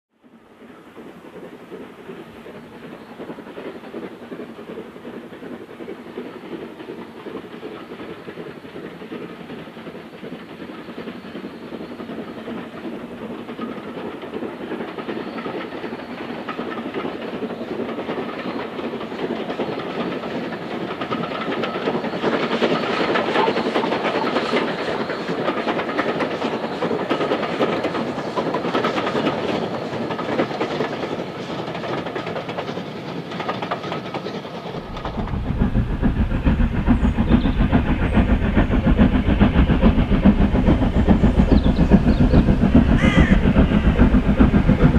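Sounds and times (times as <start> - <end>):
train wheels clattering on rails: 0.2 - 44.9
steam locomotive exhaust: 0.3 - 44.9
strong low rumble: 34.8 - 44.9.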